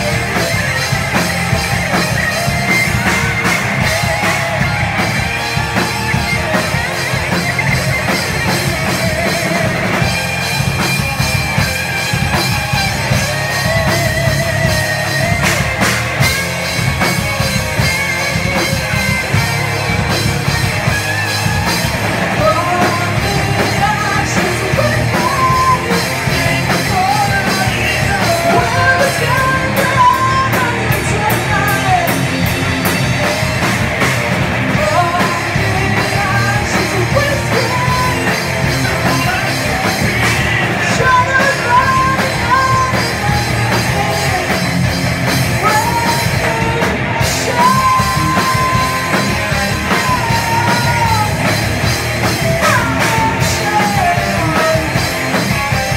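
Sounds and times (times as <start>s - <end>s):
distorted electric guitars: 0.0s - 55.9s
drum kit: 0.0s - 55.9s
woman singing: 22.4s - 32.2s, 34.7s - 40.1s, 40.8s - 44.5s, 45.6s - 49.1s, 52.6s - 55.0s.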